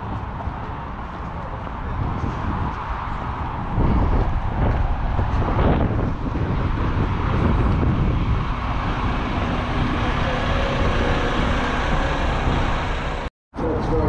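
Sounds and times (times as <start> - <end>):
diesel engine idling: 6.3 - 13.3.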